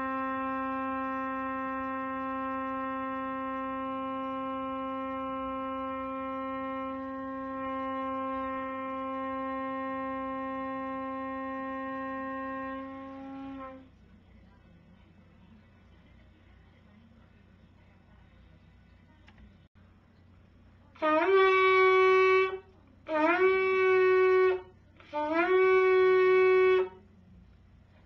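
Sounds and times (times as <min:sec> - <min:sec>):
long steady pitched note: 0:00.0 - 0:13.9, 0:21.0 - 0:27.1.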